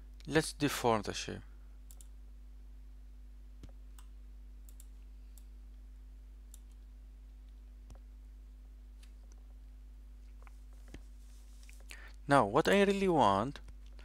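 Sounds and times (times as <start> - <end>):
low electrical hum: 0.0 - 14.0
computer mouse clicks: 1.9 - 2.1, 3.6 - 5.5, 6.5 - 6.9.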